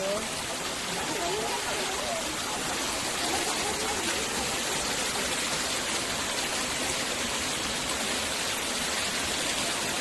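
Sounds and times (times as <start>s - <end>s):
water rushing over rocks: 0.0s - 10.0s.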